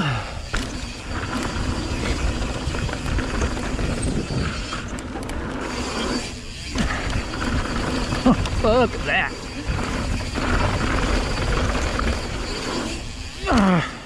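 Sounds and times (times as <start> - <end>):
bike tyres on gravel: 0.0 - 13.9
bike clicks and rattles: 0.4 - 14.0
wind rush on microphone: 0.5 - 5.3.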